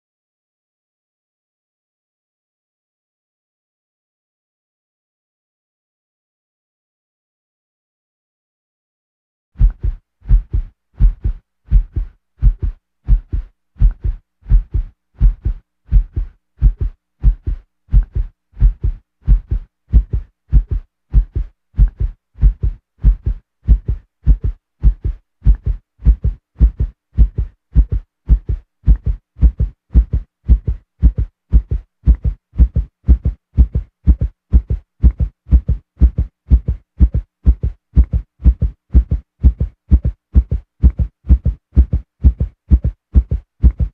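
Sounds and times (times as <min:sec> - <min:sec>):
heartbeat-like low thumps: 0:09.6 - 0:43.9.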